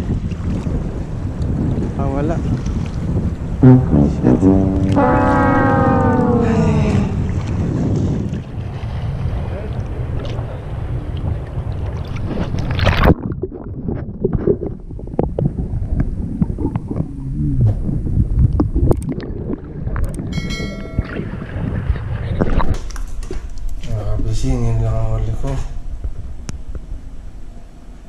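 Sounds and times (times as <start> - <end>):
wind buffeting microphone: 0.0 - 27.4
brief pitched tone: 3.6 - 7.4
muffled underwater knocks and crackles: 11.2 - 20.3, 21.0 - 23.9.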